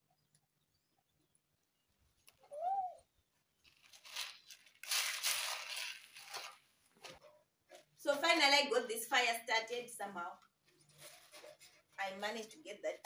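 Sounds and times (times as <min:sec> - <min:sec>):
high rising and falling call: 0:02.4 - 0:03.1.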